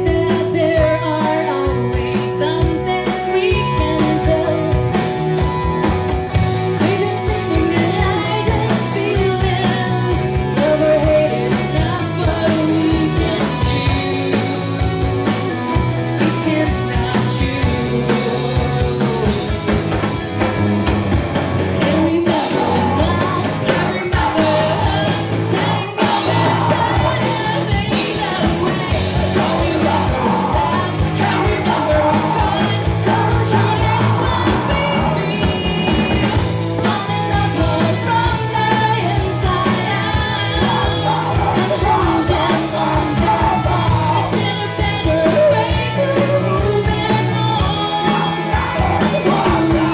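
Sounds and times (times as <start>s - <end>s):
woman singing: 0.0s - 5.6s, 6.6s - 19.7s, 21.8s - 49.9s
bass guitar: 0.0s - 49.9s
drum kit: 0.0s - 49.9s
electric guitars: 0.0s - 49.9s
shouted vocals: 39.8s - 46.5s, 47.2s - 49.9s.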